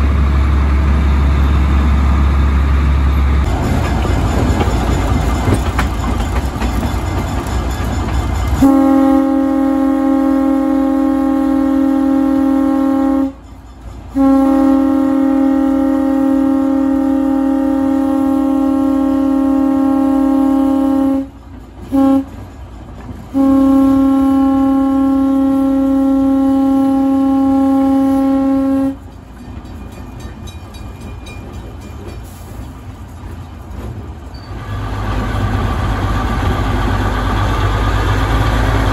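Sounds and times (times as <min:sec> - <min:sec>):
locomotive horn blasts: 0:08.6 - 0:13.4, 0:14.1 - 0:22.4, 0:23.3 - 0:29.0.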